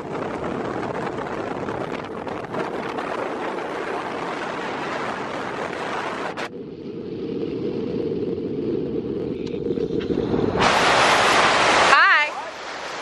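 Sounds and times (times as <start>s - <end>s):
wind buffeting microphone: 0.0s - 13.0s
water rushing past boat: 10.3s - 13.0s.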